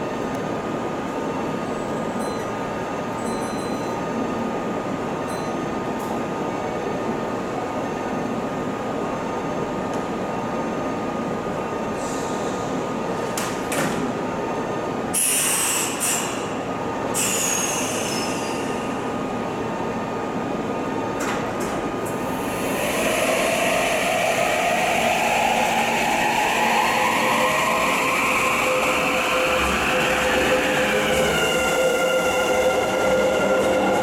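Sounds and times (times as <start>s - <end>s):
electric train humming: 18.6s - 34.0s.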